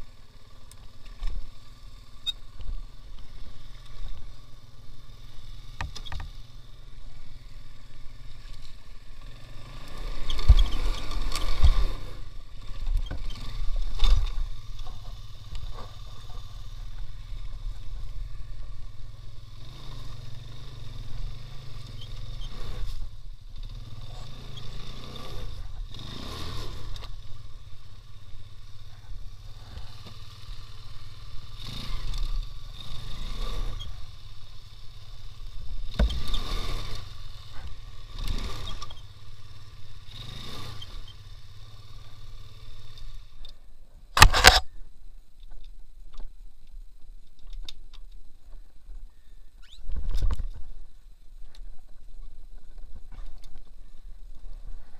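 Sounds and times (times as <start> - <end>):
motorcycle engine idling: 0.0 - 46.0, 48.0 - 49.8
sharp clack: 44.2 - 44.7.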